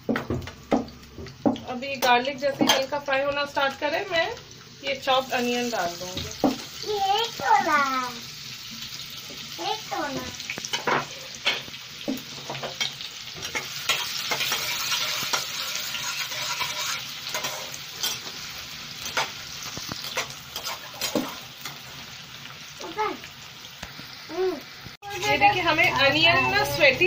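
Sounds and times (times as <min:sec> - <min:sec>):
spatula scraping and tapping pan: 0:00.0 - 0:03.0, 0:10.5 - 0:18.4, 0:19.0 - 0:22.0
onion sizzling in hot oil: 0:00.0 - 0:27.0.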